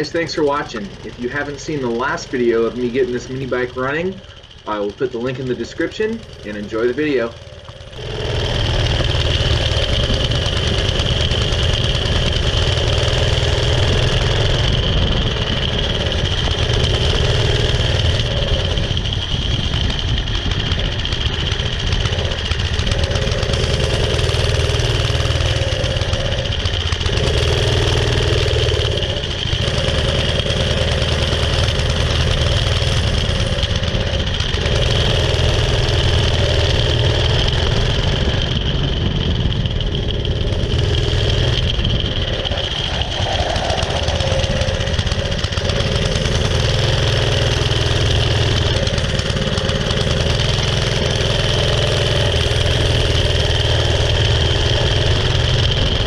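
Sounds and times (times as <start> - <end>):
small engine running: 0.0 - 56.0.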